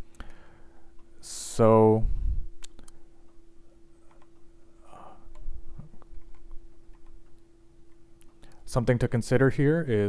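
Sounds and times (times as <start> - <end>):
faint steady hum: 0.0 - 10.0
soft clicks: 2.6 - 3.4, 4.0 - 4.5, 5.3 - 8.7.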